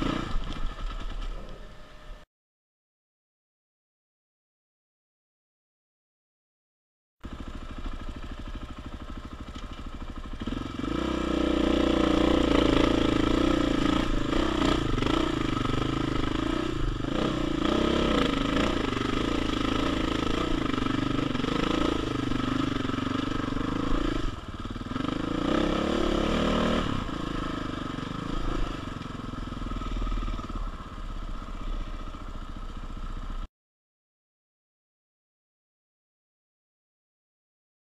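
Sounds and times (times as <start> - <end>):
dirt bike engine revving: 0.0 - 1.1, 7.3 - 33.4.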